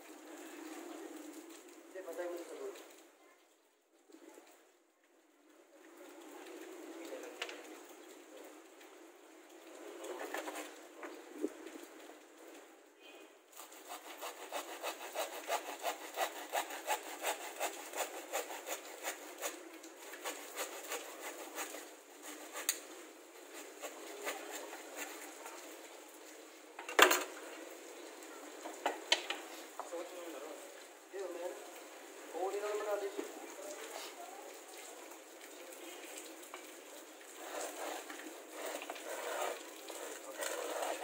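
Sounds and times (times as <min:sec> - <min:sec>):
blade scraping wooden strip: 0:10.1 - 0:10.7, 0:13.6 - 0:25.4, 0:37.4 - 0:41.0.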